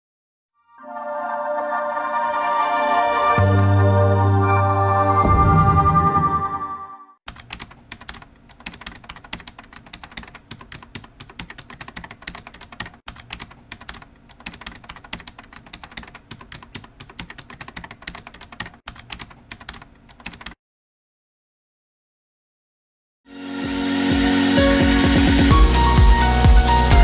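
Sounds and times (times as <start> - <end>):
musical sting: 0.6 - 7.1
keyboard typing: 7.3 - 20.6.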